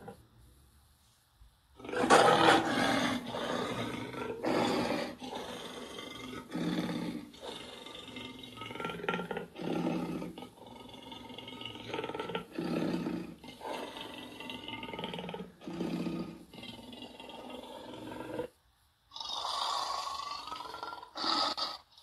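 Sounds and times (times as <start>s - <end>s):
rough roars and growls: 1.8s - 18.6s.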